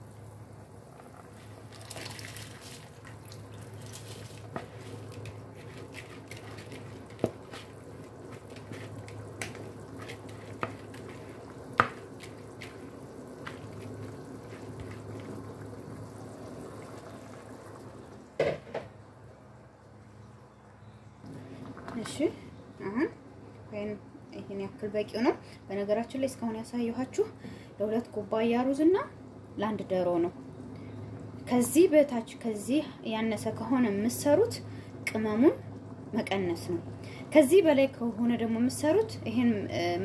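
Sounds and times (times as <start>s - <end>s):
rice splashing into liquid: 1.2s - 17.6s.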